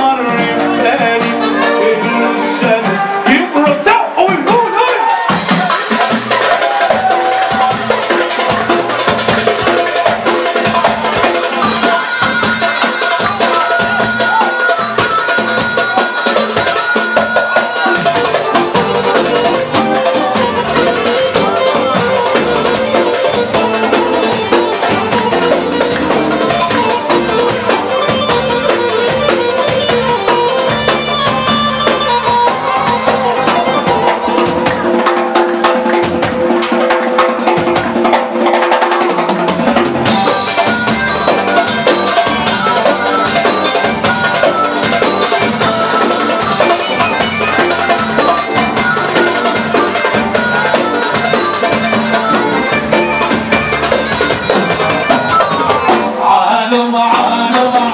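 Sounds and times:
loud dance music: 0.0s - 38.2s
steady drum beat: 0.0s - 57.9s.

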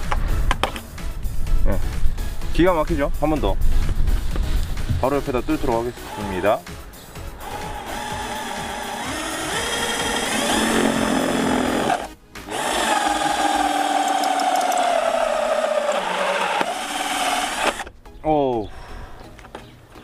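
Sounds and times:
drill motor whining: 6.0s - 6.5s, 7.4s - 17.9s.

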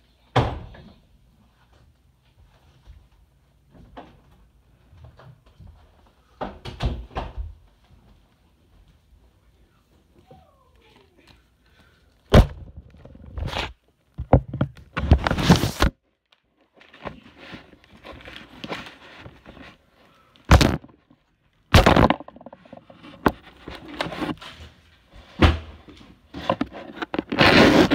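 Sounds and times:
desk being broken knocks and thuds: 12.3s - 13.3s, 20.5s - 21.0s, 21.7s - 23.4s
scraping and rubbing: 15.0s - 15.9s, 16.9s - 21.1s, 21.7s - 24.8s, 26.3s - 27.9s
wood crackling burst: 20.5s - 21.0s.

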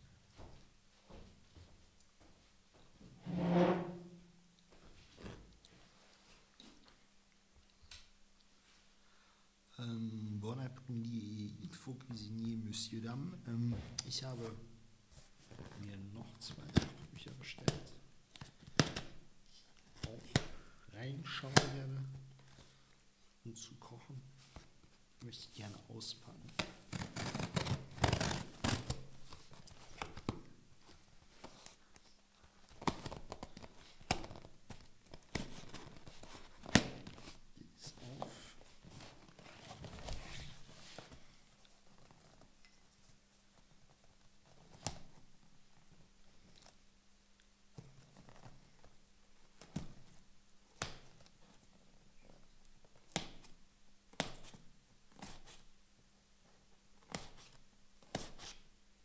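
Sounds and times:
knife cutting packing tape: 26.6s - 29.0s.

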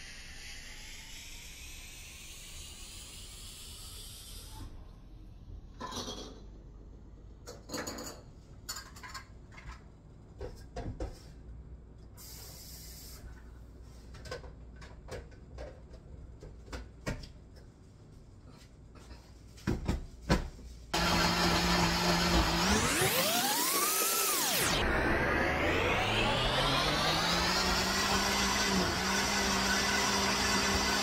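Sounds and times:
dishes clinking and knocking: 5.8s - 6.5s
brief hiss: 12.2s - 13.4s
loud steady sound: 21.0s - 31.0s.

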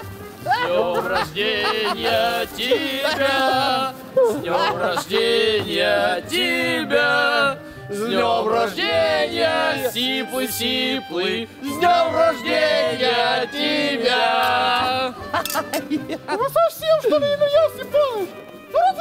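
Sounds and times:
men singing in chorus: 0.6s - 15.2s.

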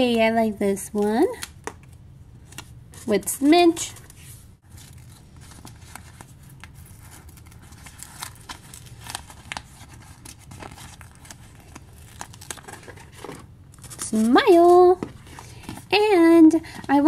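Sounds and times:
paper crinkling and rustling: 3.8s - 17.0s.

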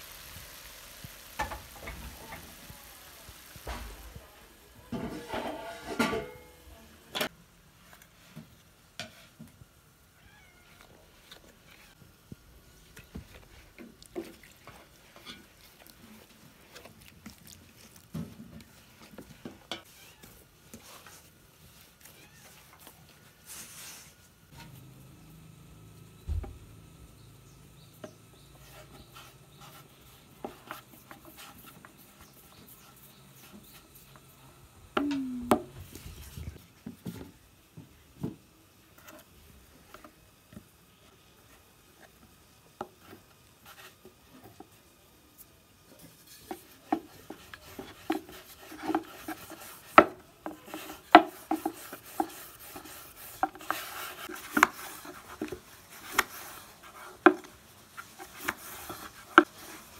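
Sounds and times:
rolling pin rolling dough: 45.9s - 59.9s.

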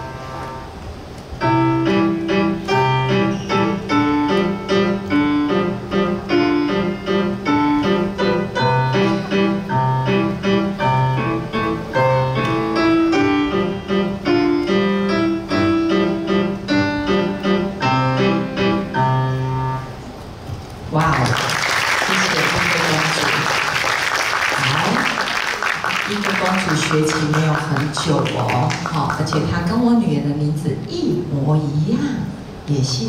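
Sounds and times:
solo piano piece: 0.0s - 20.4s.

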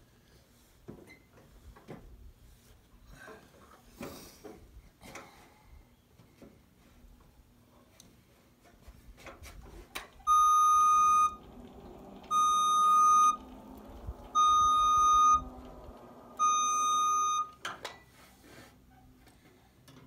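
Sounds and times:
lift alarm beeping: 10.3s - 17.6s
low hum: 10.4s - 17.5s.

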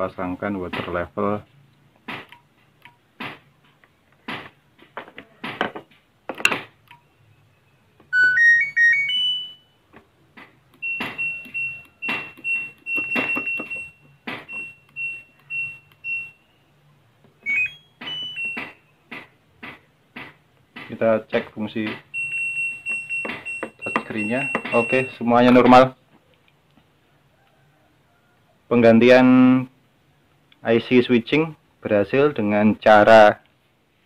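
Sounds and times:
short beeps: 10.8s - 16.5s, 17.4s - 18.8s, 22.1s - 25.7s
plastic clicks and knocks: 23.2s - 24.8s.

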